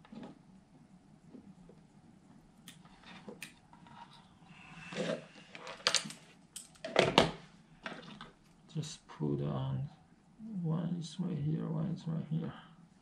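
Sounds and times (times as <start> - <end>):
wires and connectors handled: 4.9 - 8.6.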